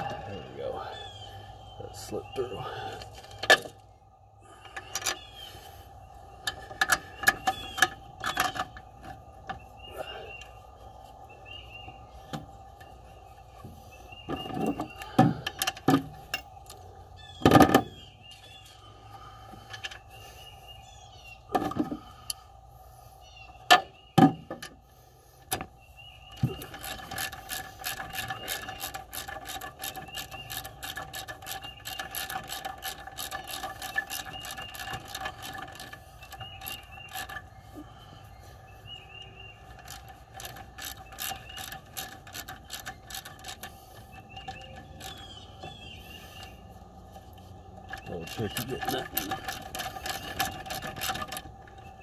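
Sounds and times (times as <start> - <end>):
hand ratchet clicking: 26.4 - 37.5, 39.6 - 45.7, 47.8 - 52.0.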